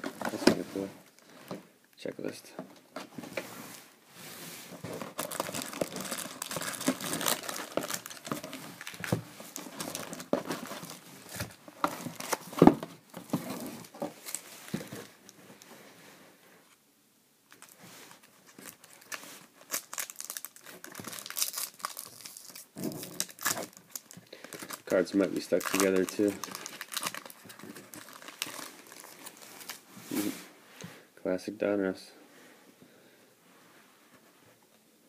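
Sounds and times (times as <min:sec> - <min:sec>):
foil wrappers crinkling and tearing: 0:05.1 - 0:12.6, 0:18.5 - 0:29.8.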